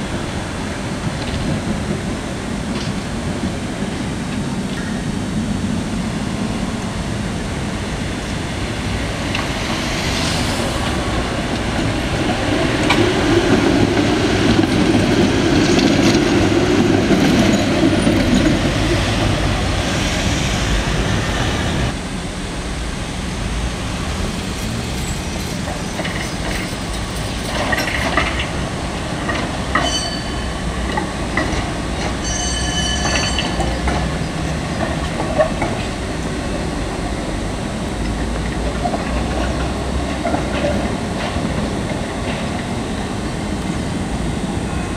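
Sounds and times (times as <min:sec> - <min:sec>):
tram wheels squealing on track: 0:08.9 - 0:21.9, 0:24.3 - 0:36.8.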